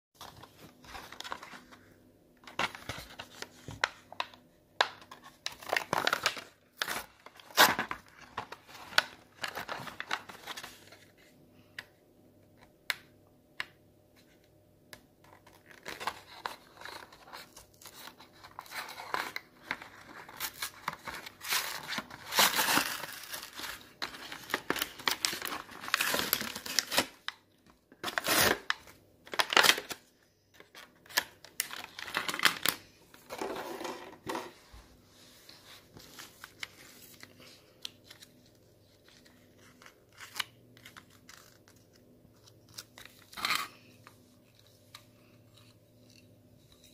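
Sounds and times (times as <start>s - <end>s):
plastic packaging crinkling and tearing: 2.5s - 11.1s, 15.3s - 33.8s.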